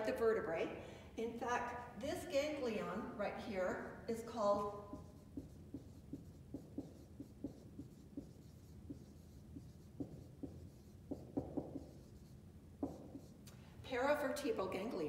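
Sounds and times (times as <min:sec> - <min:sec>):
marker squeaking on whiteboard: 0:04.6 - 0:13.4.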